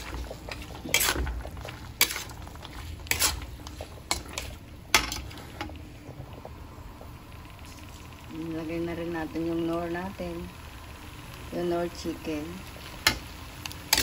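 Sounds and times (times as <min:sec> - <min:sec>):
metal spatula scraping a pan: 0:00.0 - 0:05.6.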